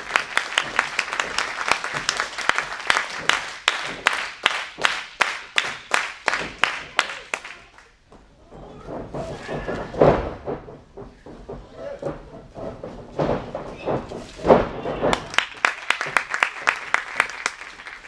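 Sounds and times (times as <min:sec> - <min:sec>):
audience clapping in unison: 0:00.0 - 0:08.0, 0:15.1 - 0:18.0.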